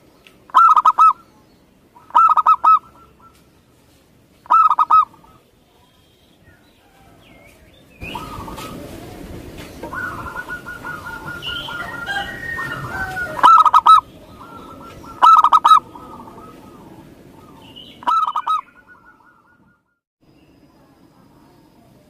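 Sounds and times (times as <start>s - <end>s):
background bird sound: 0.0s - 22.0s
dove cooing in trills: 0.5s - 1.2s, 2.0s - 3.4s, 4.5s - 5.4s, 8.0s - 19.8s.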